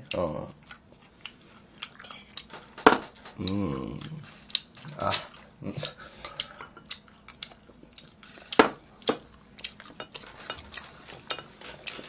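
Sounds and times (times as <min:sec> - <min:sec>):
chewing: 0:00.0 - 0:12.0
chopsticks clicking on plates: 0:01.8 - 0:12.0.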